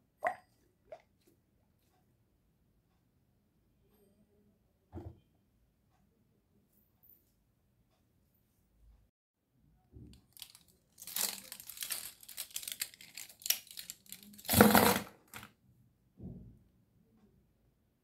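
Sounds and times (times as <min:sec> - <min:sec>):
silicone toys rubbing and rustling: 0:10.4 - 0:15.4.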